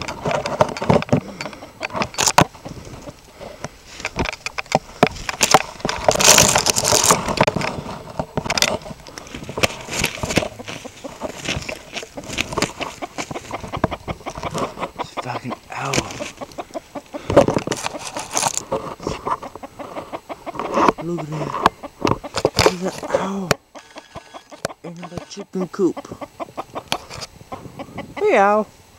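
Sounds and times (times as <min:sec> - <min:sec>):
handling clicks and knocks: 0:00.0 - 0:03.2
rustling of leaves and twigs: 0:00.0 - 0:28.9.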